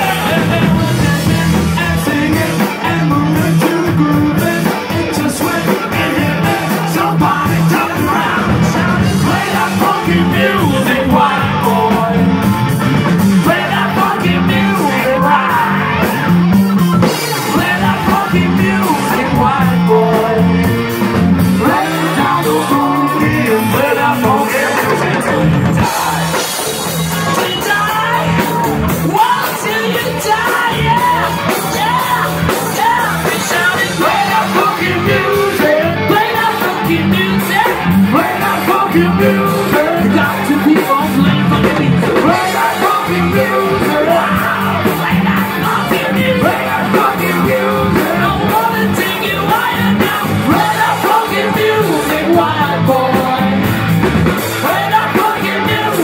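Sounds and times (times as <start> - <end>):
bass guitar: 0.0 - 56.0
drums: 0.0 - 56.0
electric guitar: 0.0 - 56.0
man singing lead vocals: 0.0 - 56.0.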